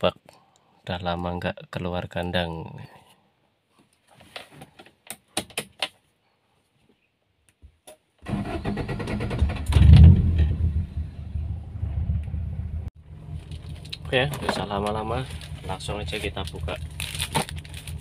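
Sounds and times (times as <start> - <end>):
car engine starting and idling: 8.2 - 18.0.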